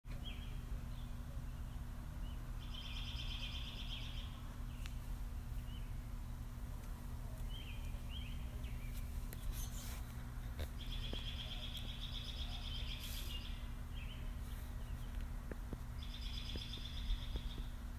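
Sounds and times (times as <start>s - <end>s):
small birds chirping: 0.1s - 17.9s
steady low hum: 0.1s - 17.9s
bird trill: 0.2s - 4.8s, 10.8s - 14.3s, 16.0s - 17.8s.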